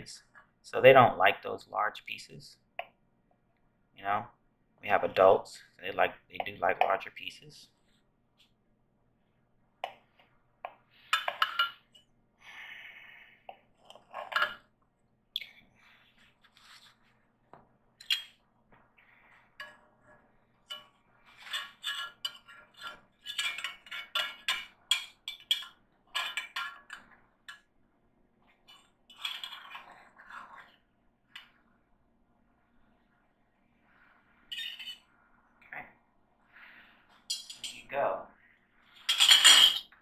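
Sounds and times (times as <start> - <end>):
dishes and utensils clinking: 11.1 - 12.1, 13.8 - 14.7, 18.0 - 18.4, 20.6 - 27.7, 37.3 - 37.9, 38.9 - 40.0.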